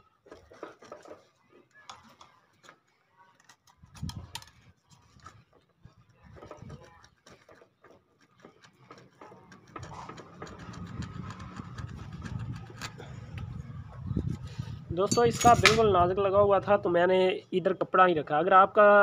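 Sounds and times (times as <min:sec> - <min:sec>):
hacksaw blade scraping metal: 0:08.3 - 0:13.0.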